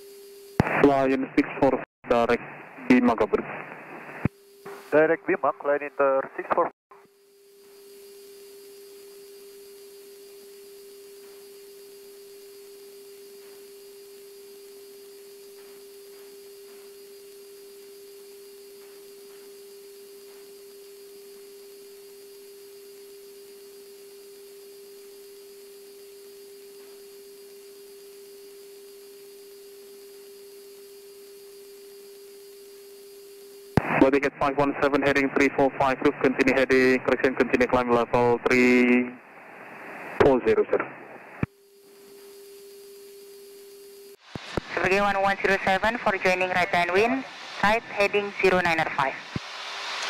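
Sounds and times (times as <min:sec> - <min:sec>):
electrical hum: 0:00.0 - 0:49.4
faint hiss: 0:33.8 - 0:43.3, 0:44.3 - 0:50.0.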